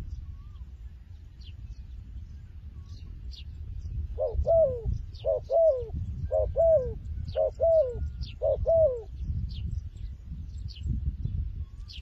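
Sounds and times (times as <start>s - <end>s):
dove cooing: 4.2s - 9.2s.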